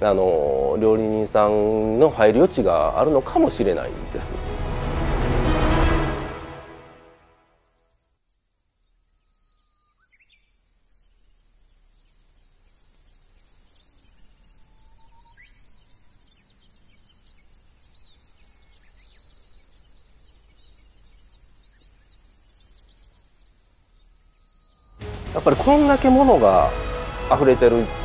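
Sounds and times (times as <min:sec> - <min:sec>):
high-pitched insect chorus: 0:00.0 - 0:05.2, 0:06.1 - 0:28.0
bird chirps: 0:08.9 - 0:25.0.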